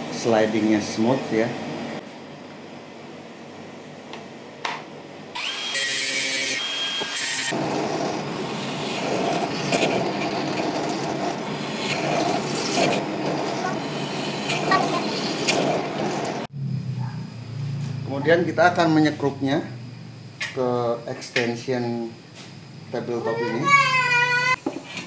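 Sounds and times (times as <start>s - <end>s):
drill press drilling steel: 5.4s - 16.2s
angle grinder whining: 5.4s - 16.5s.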